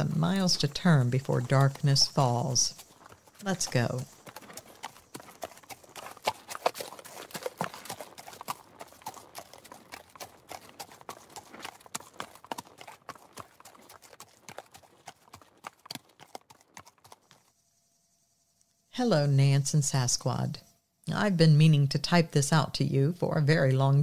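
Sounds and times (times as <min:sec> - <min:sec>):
horse hooves on hard ground: 0:00.0 - 0:17.8.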